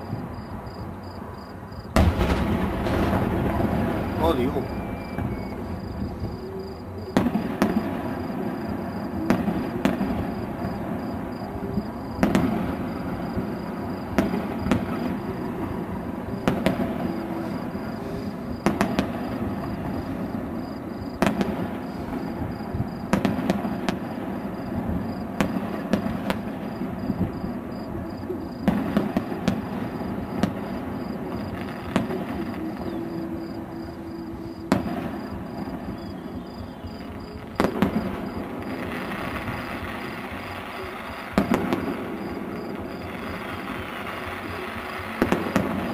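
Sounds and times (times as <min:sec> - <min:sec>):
steady background noise: 0:00.0 - 0:45.9
firework shells bursting: 0:02.0 - 0:33.6.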